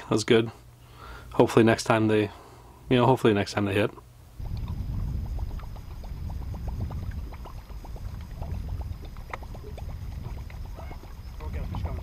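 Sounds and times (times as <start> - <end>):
waves lapping against boat hull: 4.4 - 12.0
wind rumble on microphone: 4.4 - 12.0.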